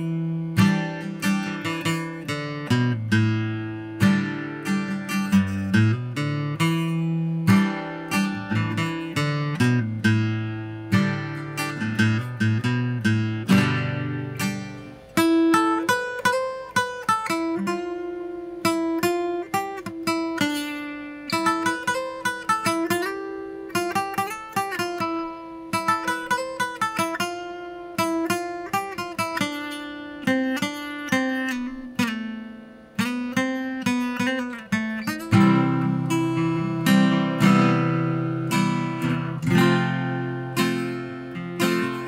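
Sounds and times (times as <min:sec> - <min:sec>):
acoustic guitar playing: 0:00.0 - 0:42.0.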